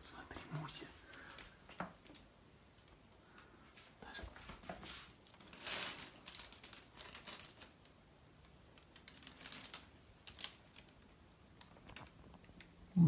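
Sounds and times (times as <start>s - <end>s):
plastic bag crinkling: 5.0s - 12.7s.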